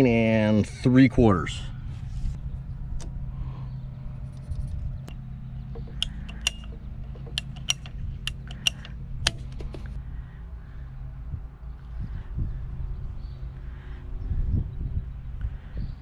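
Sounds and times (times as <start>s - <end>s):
steady low hum: 0.0s - 16.0s
ratcheting pipe cutter clicking: 5.8s - 9.9s.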